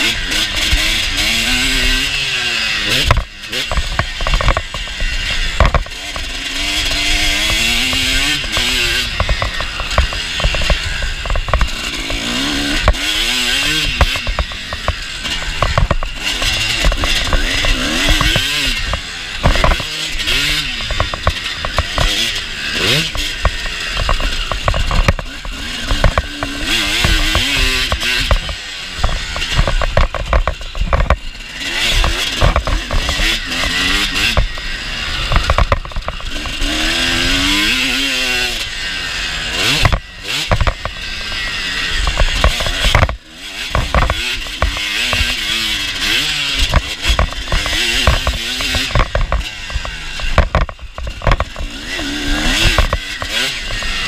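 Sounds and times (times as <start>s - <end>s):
motocross bike engine revving: 0.0s - 54.0s
sharp knocks: 7.2s - 31.2s.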